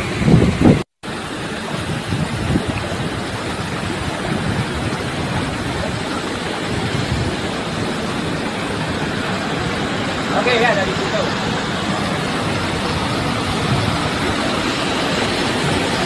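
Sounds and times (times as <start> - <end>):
wind on microphone: 0.0 - 10.3, 11.2 - 16.0
river water rushing: 0.0 - 16.0.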